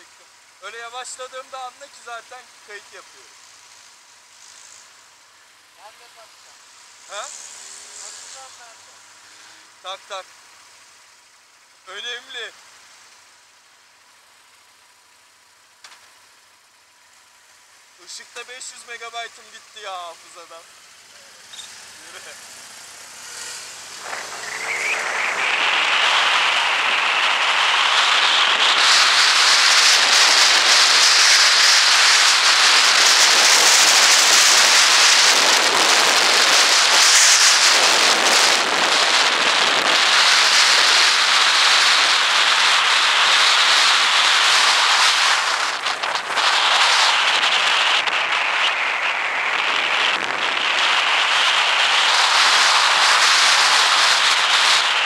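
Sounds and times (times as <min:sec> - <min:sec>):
motorcycle engine pulling away: 0:20.6 - 0:49.0.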